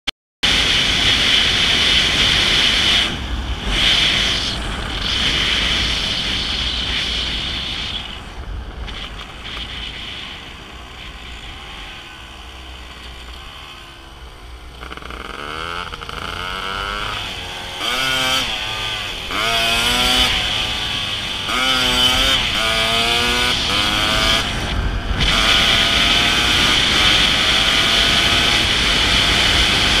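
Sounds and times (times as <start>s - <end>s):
wind rush on microphone: 0.4s - 11.3s, 18.3s - 30.0s
dirt bike engine accelerating: 0.4s - 30.0s.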